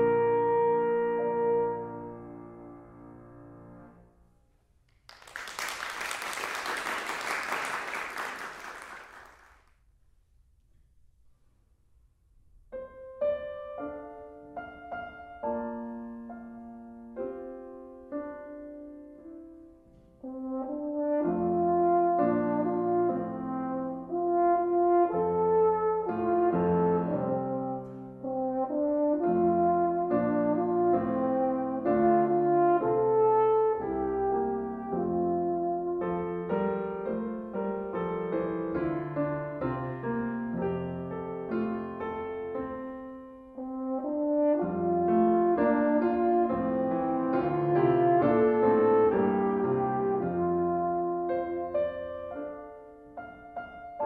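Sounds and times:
french horn: 0:00.0 - 0:02.6, 0:20.2 - 0:37.1, 0:43.5 - 0:52.5
piano: 0:00.0 - 0:09.7, 0:10.9 - 0:54.0
applause: 0:05.0 - 0:09.7.

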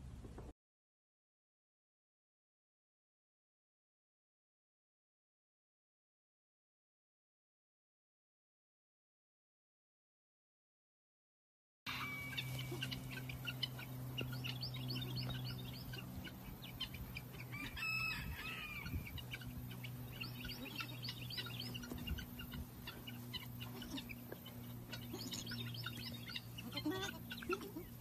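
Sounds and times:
birds chirping: 0:11.9 - 0:28.0
low hum: 0:11.9 - 0:28.0.

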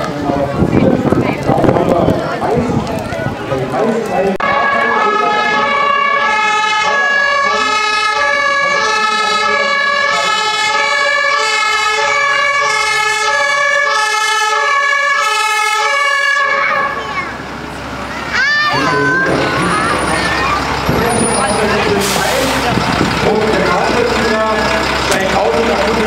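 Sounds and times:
fire engine two-tone siren: 0:04.4 - 0:17.5, 0:18.4 - 0:26.0.

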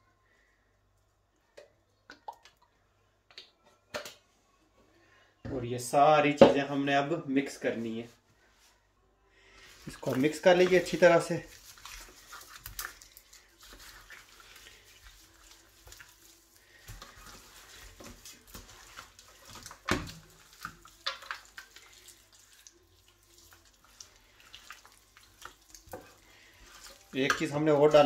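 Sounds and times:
wet squelching and rustling: 0:09.5 - 0:28.0.

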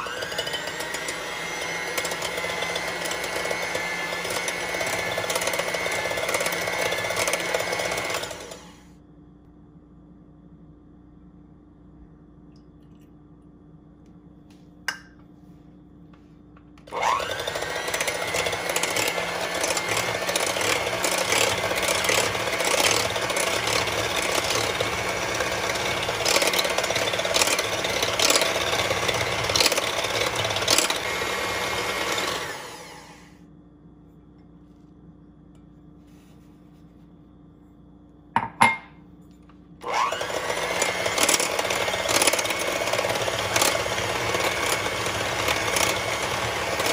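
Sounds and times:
electric hand mixer whisking: 0:00.0 - 0:08.9, 0:16.8 - 0:33.4, 0:39.8 - 0:46.9.

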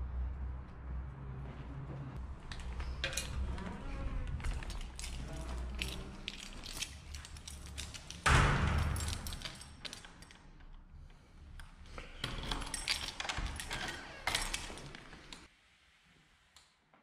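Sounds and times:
key turning in door lock: 0:02.5 - 0:10.8, 0:11.6 - 0:15.5
keys jangling: 0:02.5 - 0:10.8, 0:11.6 - 0:15.5.

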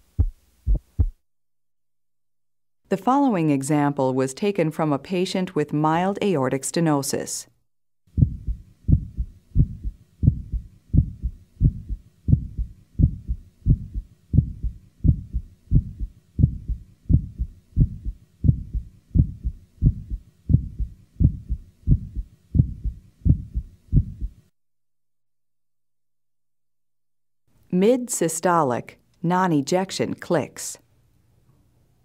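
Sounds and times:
heartbeat through stethoscope: 0:00.0 - 0:01.2, 0:08.1 - 0:24.5.

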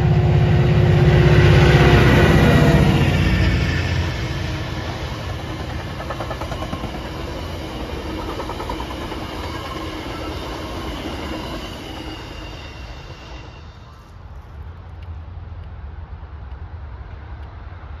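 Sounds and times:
train wheels on rails: 0:00.0 - 0:18.0.

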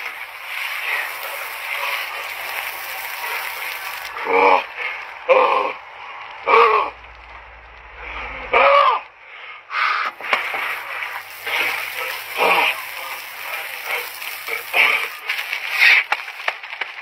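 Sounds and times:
shower water splashing: 0:00.0 - 0:05.2, 0:10.1 - 0:16.4.

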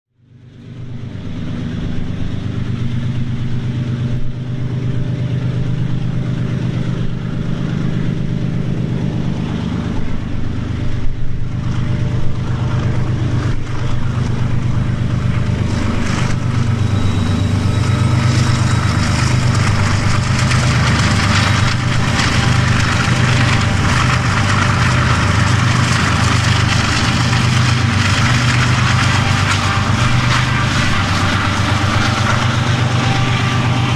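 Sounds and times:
diesel locomotive engine drone: 0:00.1 - 0:33.9
wheel and rail noise: 0:00.2 - 0:33.9.

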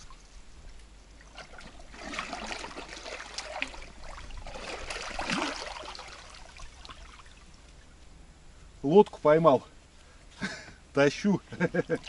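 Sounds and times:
water sloshing around wading legs: 0:00.0 - 0:07.9.

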